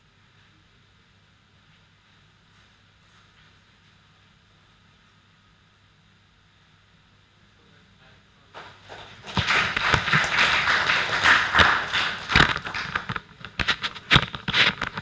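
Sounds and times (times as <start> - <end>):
audience applauding: 8.6 - 13.2.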